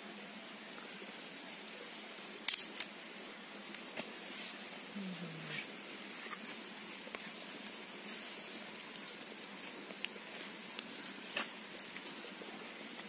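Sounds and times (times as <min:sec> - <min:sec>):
faint outdoor hiss: 0:00.0 - 0:13.0
dry leaves crackling: 0:03.8 - 0:13.0.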